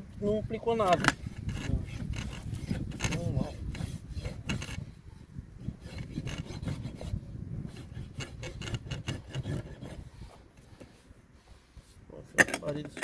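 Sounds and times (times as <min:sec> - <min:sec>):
rasp filing horse hoof: 0:00.8 - 0:05.0, 0:05.6 - 0:11.1.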